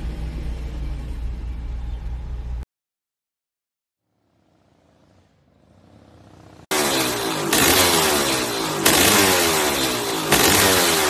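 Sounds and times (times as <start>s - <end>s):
dirt bike engine revving: 4.2s - 11.0s.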